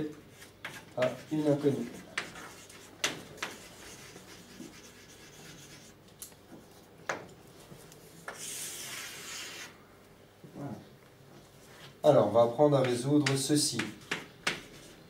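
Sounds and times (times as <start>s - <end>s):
chalk scratching on blackboard: 0.3s - 6.0s, 8.3s - 9.8s, 14.1s - 15.0s.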